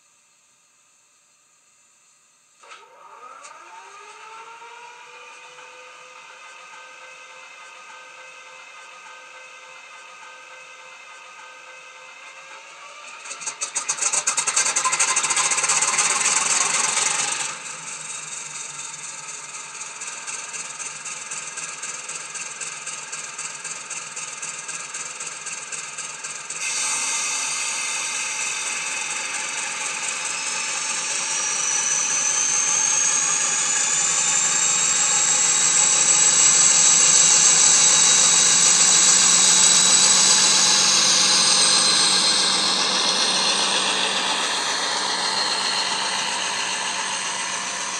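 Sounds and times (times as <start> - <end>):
diesel locomotive engine through speaker: 25.6 - 47.9
rising whine: 26.6 - 47.9.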